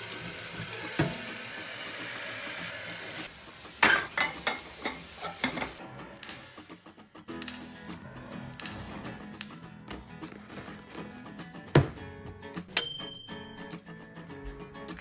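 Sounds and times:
tap water running into kettle: 0:00.0 - 0:05.7.

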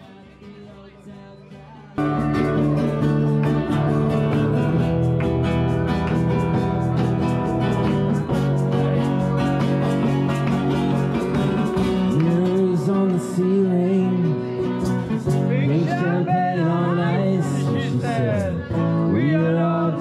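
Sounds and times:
guitar music: 0:00.0 - 0:20.0
person singing: 0:06.0 - 0:20.0.

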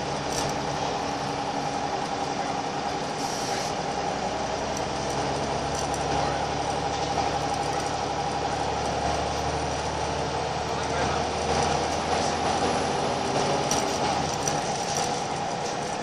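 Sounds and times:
bus diesel engine drone: 0:00.0 - 0:16.0.

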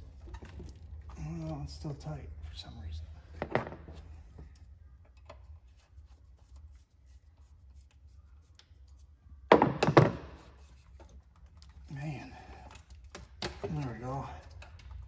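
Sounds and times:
loud knocks of parts shifting: 0:03.3 - 0:04.0, 0:09.5 - 0:10.5.

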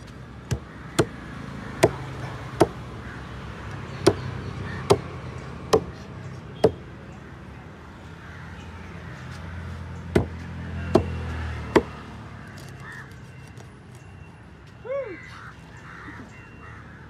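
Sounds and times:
crow cawing: 0:00.5 - 0:03.4, 0:04.1 - 0:05.1, 0:12.8 - 0:13.1, 0:15.1 - 0:17.0
knife knocking on wooden block: 0:10.2 - 0:10.4.

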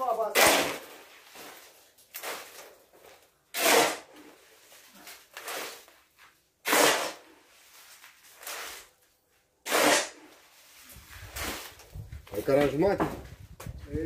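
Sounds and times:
shovel scraping concrete: 0:00.0 - 0:02.8, 0:03.5 - 0:09.0, 0:09.6 - 0:11.8.

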